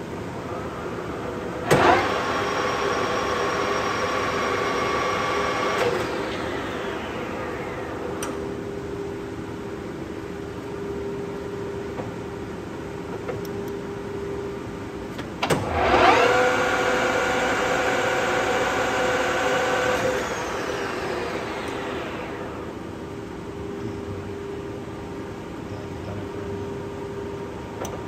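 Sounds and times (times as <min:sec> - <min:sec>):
lathe chuck spinning with gear whine: 0:15.7 - 0:22.9.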